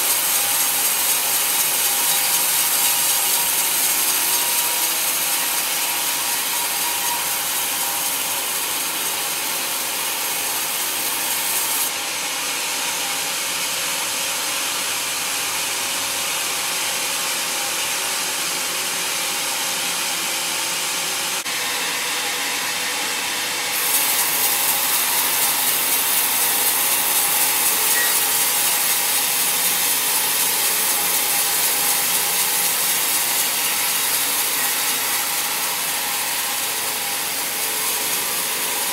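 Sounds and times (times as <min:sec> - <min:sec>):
band saw blade cutting log: 0:00.0 - 0:12.0, 0:20.2 - 0:38.9.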